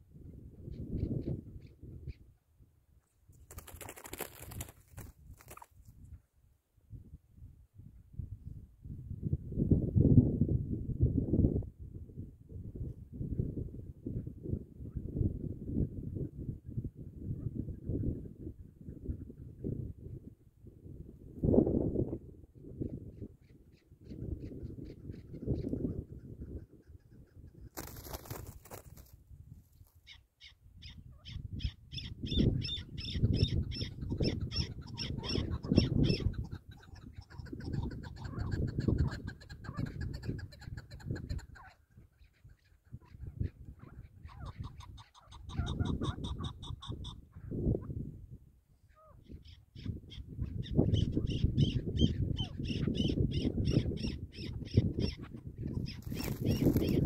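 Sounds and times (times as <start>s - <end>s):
wind rumble on microphone: 0.0s - 57.0s
partridge calling: 30.1s - 41.7s, 49.3s - 57.0s.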